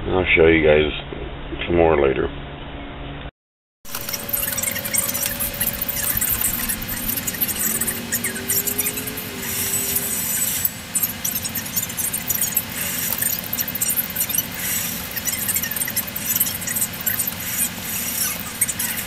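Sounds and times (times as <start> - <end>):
chicks peeping: 3.9 - 19.0
incubator hum: 3.9 - 19.0.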